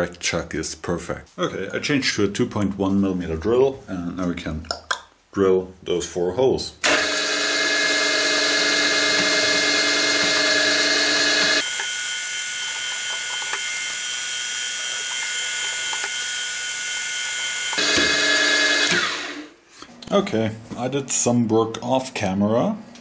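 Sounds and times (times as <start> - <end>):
drill spindle whining: 6.8 - 19.5.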